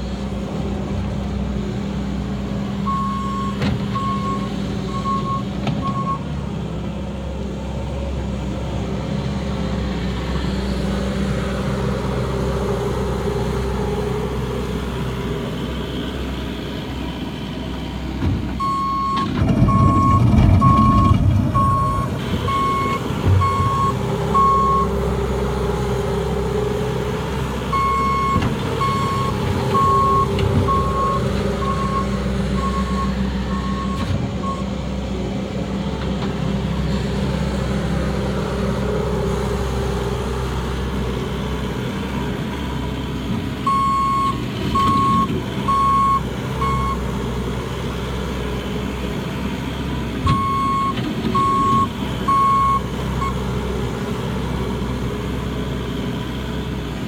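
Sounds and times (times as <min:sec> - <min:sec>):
loader engine running: 0:00.0 - 0:57.0
reversing alarm beeping: 0:02.9 - 0:06.2, 0:18.6 - 0:25.0, 0:27.7 - 0:34.7, 0:43.7 - 0:47.0, 0:50.3 - 0:53.4.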